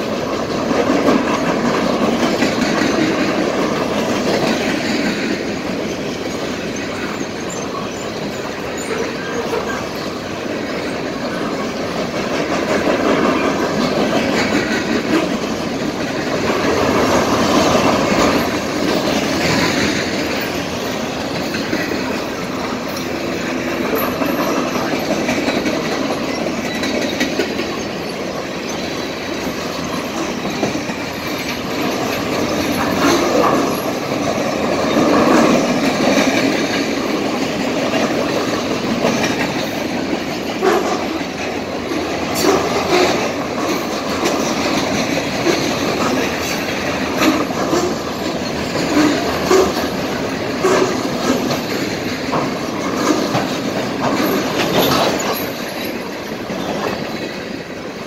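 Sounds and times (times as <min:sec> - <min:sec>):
freight train rumbling past: 0:00.0 - 0:58.0
wheels clacking over rail joints: 0:00.0 - 0:58.0.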